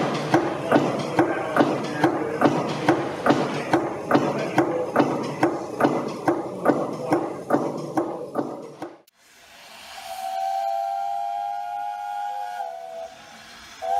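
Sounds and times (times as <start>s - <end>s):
steam hiss: 0.0s - 7.1s, 9.1s - 13.9s
engine running with regular knock: 0.0s - 9.1s
steam whistle blowing: 9.3s - 13.9s.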